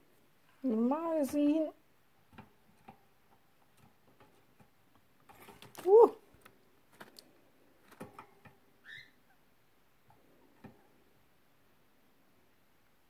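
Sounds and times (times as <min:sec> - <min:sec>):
young bird squeaking and chirping: 0:08.8 - 0:09.2.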